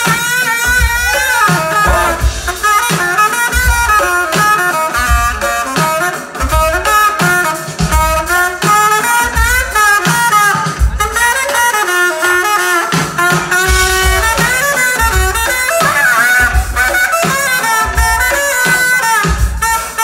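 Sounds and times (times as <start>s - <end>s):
saxophone melody: 0.0s - 20.0s
deep drum hits: 0.8s - 2.7s.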